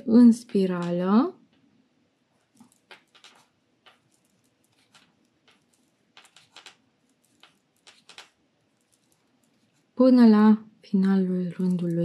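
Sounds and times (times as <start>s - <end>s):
crochet hook clicking: 2.6s - 8.3s.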